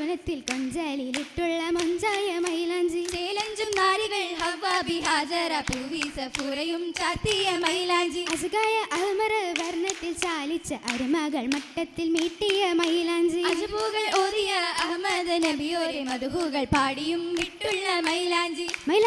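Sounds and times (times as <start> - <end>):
girls singing: 0.0 - 19.0
sharp hand claps: 0.5 - 19.0.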